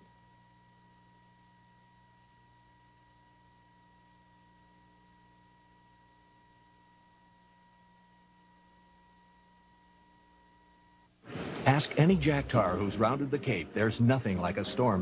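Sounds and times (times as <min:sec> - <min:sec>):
tape hiss and hum: 0:00.0 - 0:15.0.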